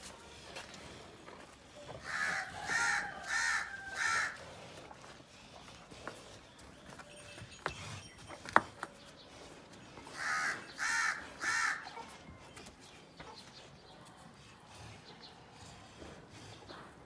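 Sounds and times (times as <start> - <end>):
crow cawing: 2.1 - 4.4, 10.2 - 11.8.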